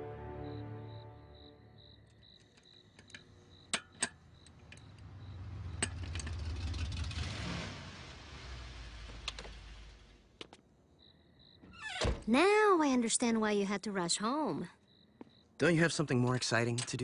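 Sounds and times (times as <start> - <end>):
crickets chirping: 0.3 - 8.4, 10.4 - 12.0, 12.8 - 16.8
vehicle engine rumble: 4.1 - 10.8.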